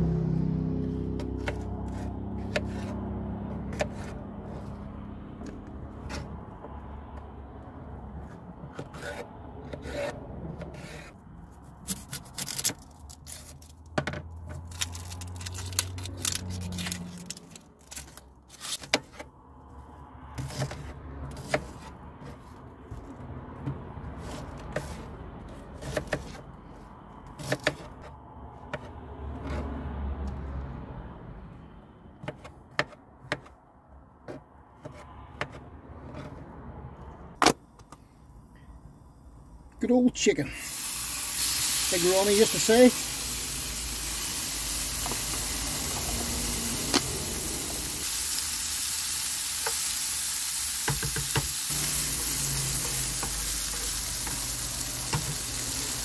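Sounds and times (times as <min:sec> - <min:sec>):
rubbing and scraping of vegetables: 0:01.0 - 0:07.2, 0:08.0 - 0:19.3, 0:20.2 - 0:30.3, 0:34.3 - 0:36.8, 0:50.9 - 0:56.0.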